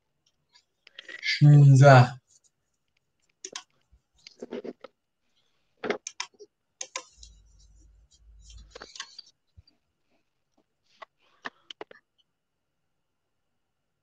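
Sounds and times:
faint clicks and taps: 0:02.3 - 0:05.0, 0:05.8 - 0:09.8.

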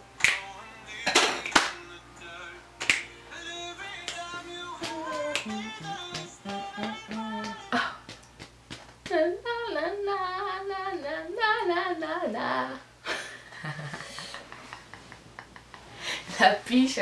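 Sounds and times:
woman singing: 0:03.7 - 0:08.2, 0:09.1 - 0:12.9.

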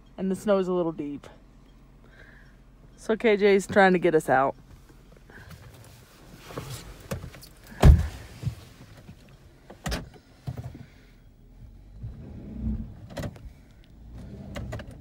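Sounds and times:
clothing and seat rustling: 0:04.6 - 0:10.9
car door shutting: 0:06.4 - 0:10.9.

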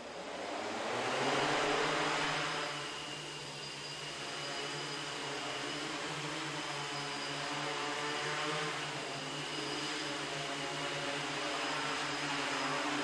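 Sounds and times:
drone motors and propellers buzzing: 0:00.0 - 0:13.0.

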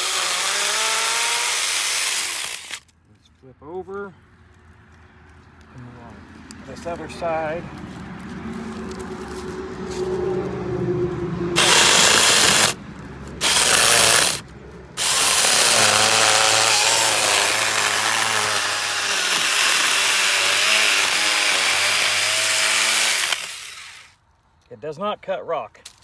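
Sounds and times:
cordless chainsaw cutting wood: 0:00.0 - 0:02.8, 0:11.6 - 0:12.8, 0:13.4 - 0:14.4, 0:15.0 - 0:24.2.

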